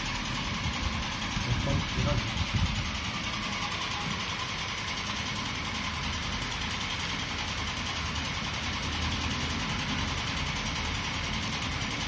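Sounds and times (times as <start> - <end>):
mechanical drone with rumble: 0.0 - 12.0.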